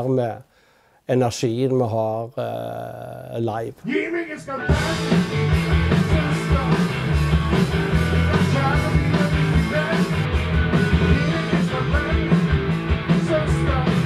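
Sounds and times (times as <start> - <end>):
person singing: 3.8 - 14.0
rock band playing: 4.3 - 14.0.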